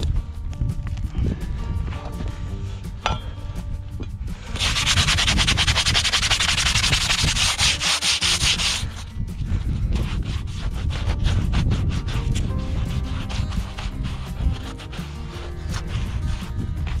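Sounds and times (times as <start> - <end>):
abrasive tool scraping hard surface: 4.5 - 17.0.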